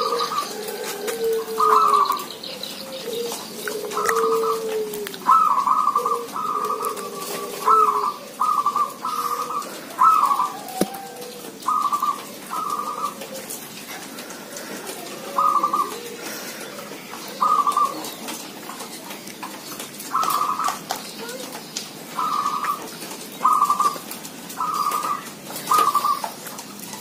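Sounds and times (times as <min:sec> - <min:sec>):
low drawn-out coo: 0:00.0 - 0:18.2, 0:24.6 - 0:26.3
doves cooing: 0:00.0 - 0:27.0.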